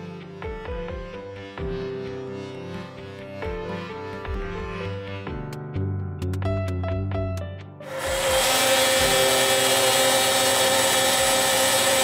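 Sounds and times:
power tool whining: 7.8 - 12.0.

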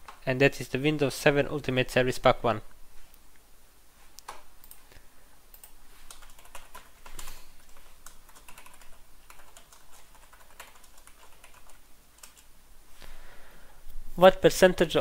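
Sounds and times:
keyboard typing: 5.5 - 12.5.

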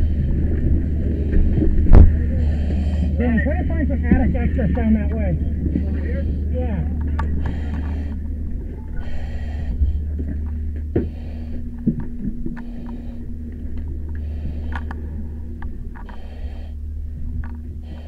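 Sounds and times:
steady low rumble: 0.0 - 18.0
breathing through mask regulator hiss: 2.3 - 3.2, 7.4 - 13.3, 14.1 - 16.9, 17.8 - 18.0
gear clicks and knocks: 10.2 - 16.3.

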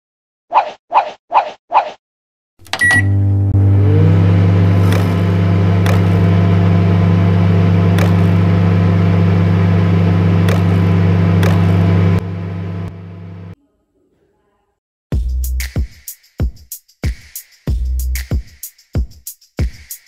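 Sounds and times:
short electronic beep: 2.7 - 3.2
robot vacuum motor hum: 2.7 - 13.6.

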